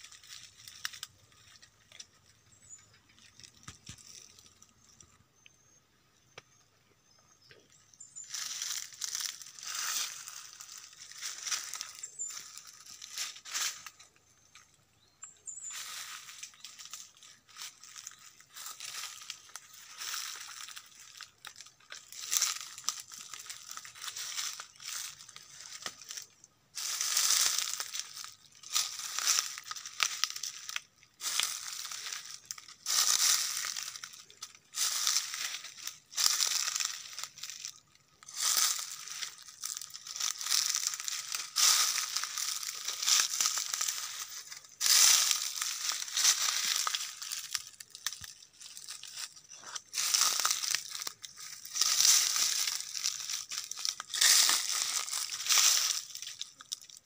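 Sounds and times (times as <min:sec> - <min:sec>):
brush rustling: 0:00.0 - 0:04.9, 0:08.2 - 0:14.8, 0:15.4 - 0:57.0
footsteps crunching through leaves: 0:00.0 - 0:05.0, 0:08.0 - 0:57.0.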